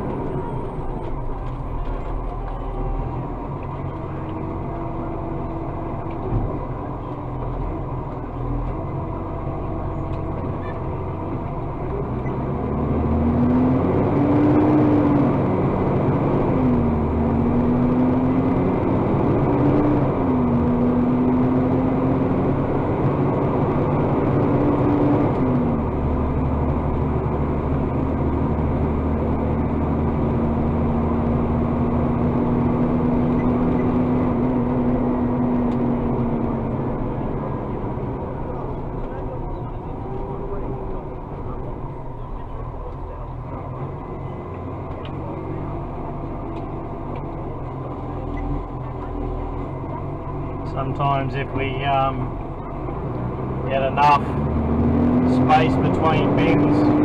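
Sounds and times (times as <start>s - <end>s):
truck diesel engine revving: 0.0s - 57.0s.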